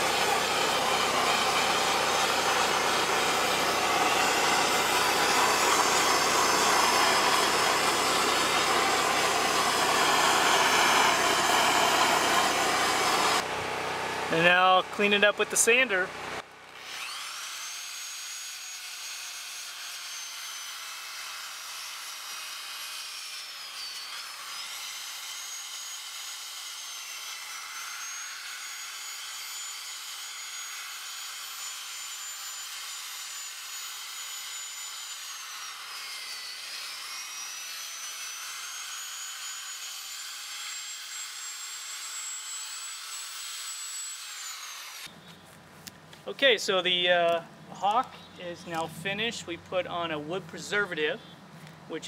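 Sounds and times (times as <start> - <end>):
sanding wheel on wood: 0.0 - 13.4
electric drill motor whine: 0.0 - 14.4, 16.6 - 45.3.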